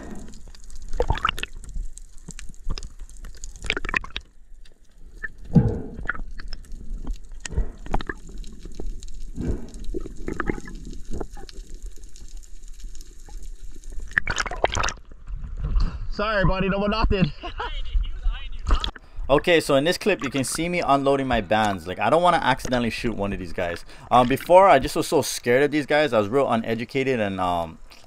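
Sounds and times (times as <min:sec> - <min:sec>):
water gurgling and sloshing: 0:00.0 - 0:15.8.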